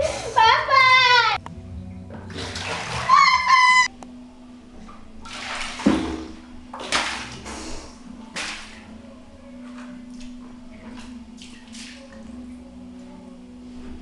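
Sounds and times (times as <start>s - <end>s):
faint steady hum: 0.0s - 14.0s
water splashing: 2.2s - 3.8s, 5.1s - 9.0s, 9.6s - 12.5s.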